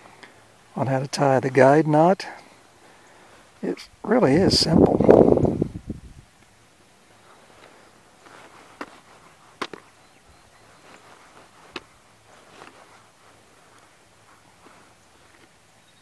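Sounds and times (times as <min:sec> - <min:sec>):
faint handling noise: 0:06.3 - 0:16.0.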